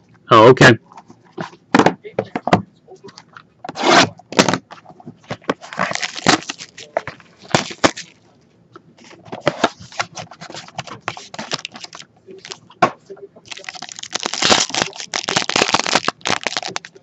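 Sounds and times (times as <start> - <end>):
cardboard box crackling and rustling: 5.2 - 8.2, 9.4 - 12.6, 13.5 - 17.0.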